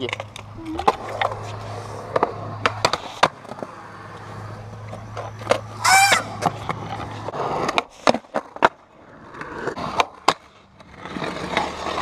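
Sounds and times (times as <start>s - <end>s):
skateboard rolling on concrete: 0.0s - 12.0s
skateboard clacks and knocks: 4.8s - 12.0s
high pitched squeal: 5.7s - 6.5s.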